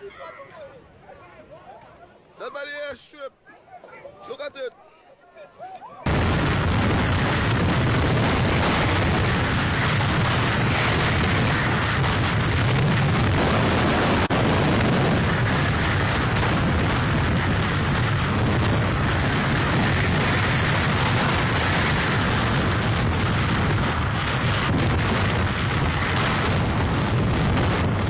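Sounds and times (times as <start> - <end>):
strong wind and driving rain: 6.0 - 28.0.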